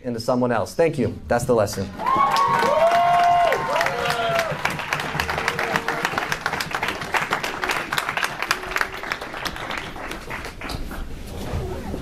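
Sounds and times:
congregation applauding: 1.9 - 11.1.

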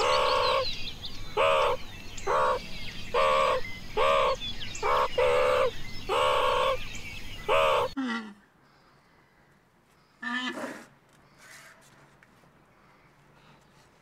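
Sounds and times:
meerkat yelping calls: 1.4 - 6.8, 7.5 - 8.2.

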